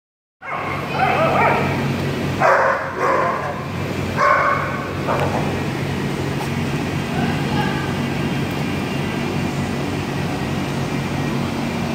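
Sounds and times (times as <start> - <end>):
dogs barking: 0.4 - 1.8, 2.4 - 5.4
dogs yipping: 0.4 - 1.8, 2.4 - 3.6, 4.2 - 4.9
steady low hum: 0.4 - 11.9.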